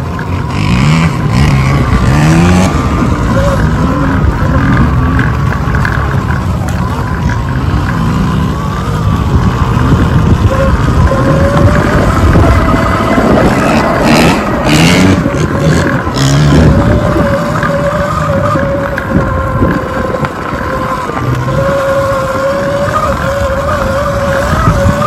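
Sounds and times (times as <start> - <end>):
motorcycle engine whine: 0.0 - 25.0
wind rumble on microphone: 0.0 - 25.0.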